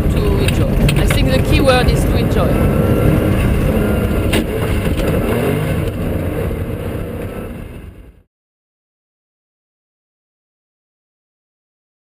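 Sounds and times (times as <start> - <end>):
rally car engine revving: 0.0 - 8.3.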